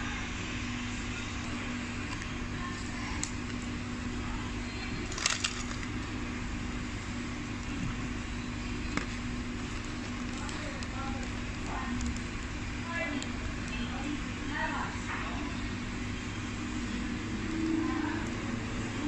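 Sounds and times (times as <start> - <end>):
steady background hum: 0.0 - 19.0
paper wrapper crinkling: 5.0 - 6.2, 8.8 - 13.7.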